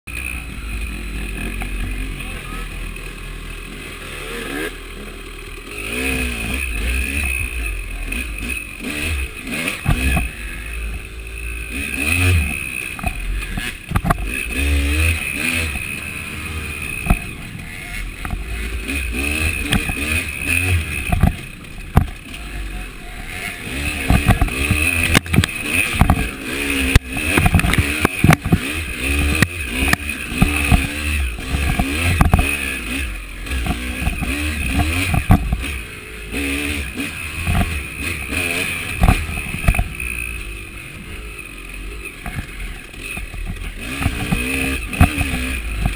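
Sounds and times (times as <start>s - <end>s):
dirt bike engine revving: 0.1s - 45.9s
bike knocks and clatter: 12.4s - 15.9s, 18.2s - 22.5s, 23.9s - 35.8s, 37.4s - 40.0s, 42.2s - 45.9s.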